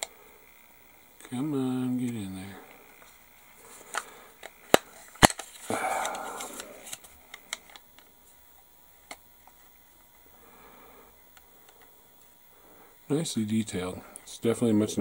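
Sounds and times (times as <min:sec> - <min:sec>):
hard plastic parts clicking: 0:03.8 - 0:08.1.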